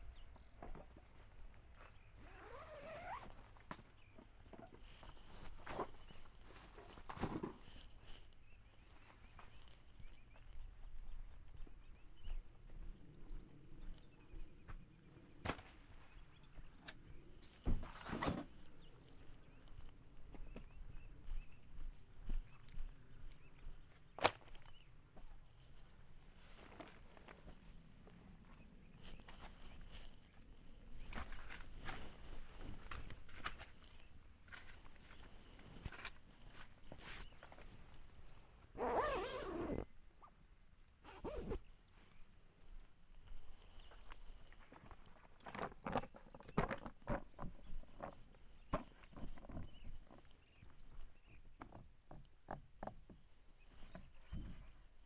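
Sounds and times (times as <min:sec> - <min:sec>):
tent zipper rasping: 0:02.2 - 0:03.4, 0:38.8 - 0:39.9, 0:41.0 - 0:41.6
clothes rustling: 0:02.2 - 0:03.6, 0:38.8 - 0:39.8.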